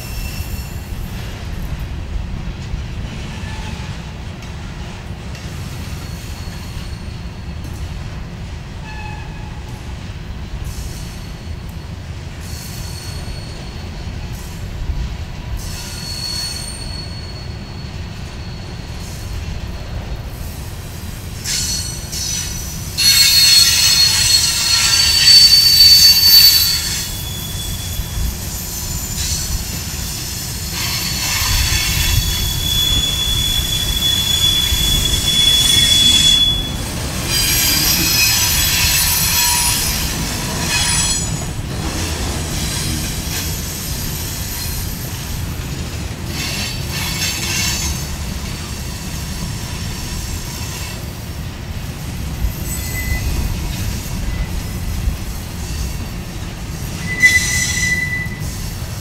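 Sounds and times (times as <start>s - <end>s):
train wheels rumbling on rail: 0.0s - 59.0s
high-pitched wheel squeal: 15.6s - 18.9s, 21.5s - 41.5s, 52.5s - 54.8s, 57.0s - 58.7s.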